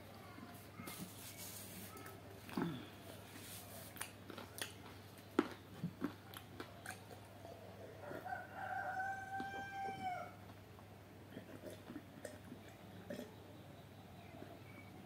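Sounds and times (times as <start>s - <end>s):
mouth clicks and smacks eating: 3.8s - 7.4s, 11.3s - 13.3s
rooster crowing: 8.0s - 10.4s.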